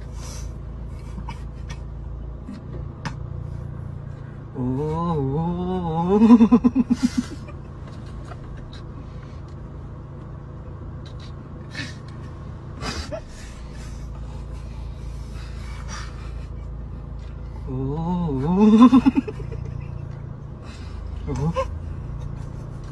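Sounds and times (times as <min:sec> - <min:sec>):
car cabin rumble: 0:00.0 - 0:22.9
stifled laughter: 0:06.1 - 0:07.8, 0:18.4 - 0:20.3, 0:21.3 - 0:22.9.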